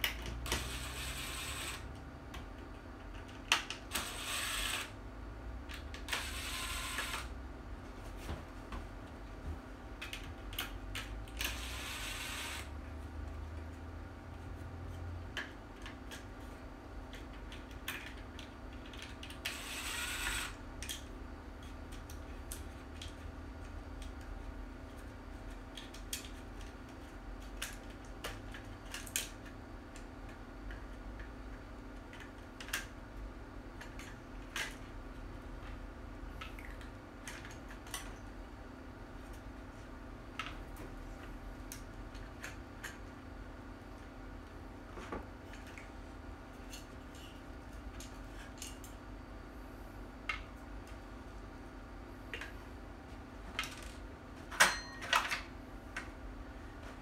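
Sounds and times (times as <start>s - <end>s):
cordless drill driving screws: 3.9s - 4.9s
clicks and knocks of parts: 17.1s - 19.6s, 24.9s - 33.0s, 33.8s - 34.9s, 36.4s - 38.2s, 46.5s - 49.0s, 53.5s - 56.1s.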